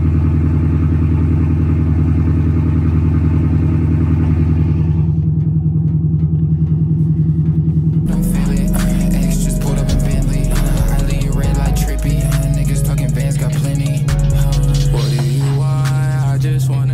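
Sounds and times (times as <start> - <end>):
car engine idling: 0.0 - 16.9
music: 4.9 - 16.9.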